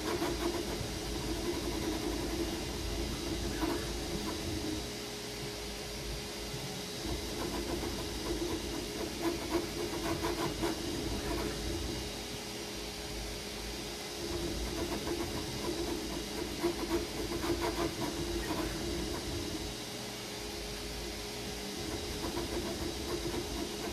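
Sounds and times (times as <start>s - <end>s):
stepper motors whirring: 0.0s - 5.0s, 7.0s - 12.2s, 14.2s - 19.8s, 21.4s - 23.9s
cooling fans hissing: 0.0s - 23.9s.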